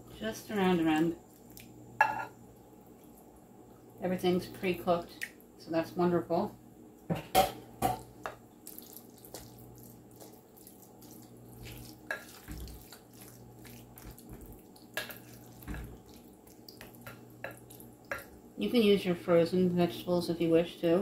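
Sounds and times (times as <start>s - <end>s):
wet squishing of filling: 1.3s - 1.8s, 8.6s - 18.3s.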